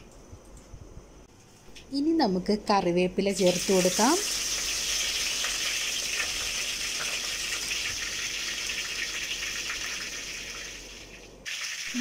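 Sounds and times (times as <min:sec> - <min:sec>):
leaves sizzling in hot oil: 0:03.3 - 0:12.0.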